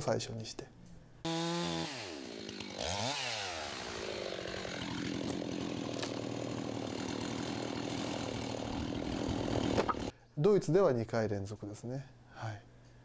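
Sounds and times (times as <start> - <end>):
chainsaw engine revving: 1.3 - 10.1.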